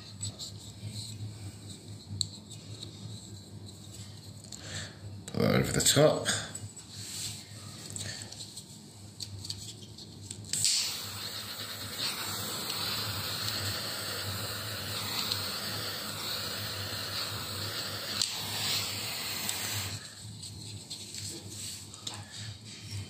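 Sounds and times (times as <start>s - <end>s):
heat gun blowing hot air: 10.6s - 20.1s.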